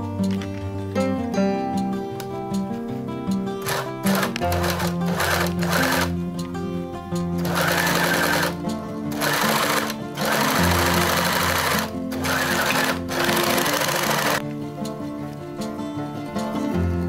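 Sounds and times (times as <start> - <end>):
background music: 0.0 - 17.0
overlock machine stitching: 3.6 - 6.1, 7.4 - 14.4.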